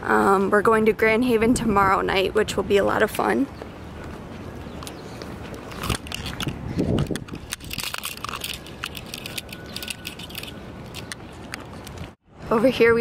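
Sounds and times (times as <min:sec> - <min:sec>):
camera handling crackling and clicks: 0:05.7 - 0:12.1.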